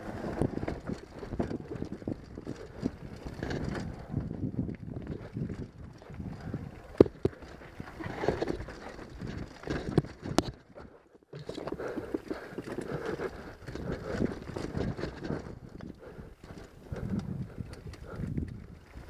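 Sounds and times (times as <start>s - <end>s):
tyre noise on dirt: 0.0s - 10.7s
mountain bike rattling over rocks: 0.0s - 19.0s.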